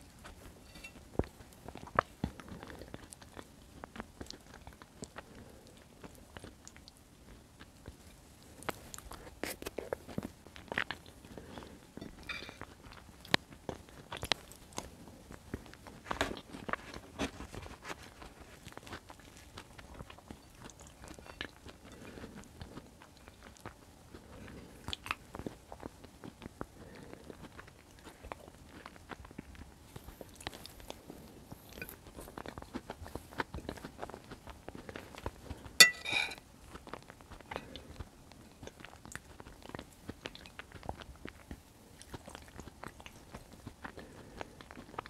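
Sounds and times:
chewing and wet mouth sounds: 0:00.0 - 0:45.0
metal spoon scraping plate: 0:35.8 - 0:36.4.

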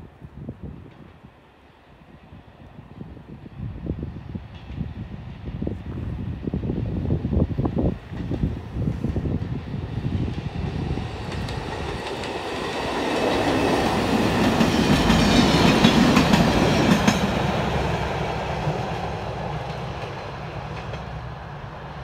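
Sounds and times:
diesel train engine passing: 0:00.6 - 0:22.0
train wheels clicking over rail joints: 0:11.2 - 0:17.6.

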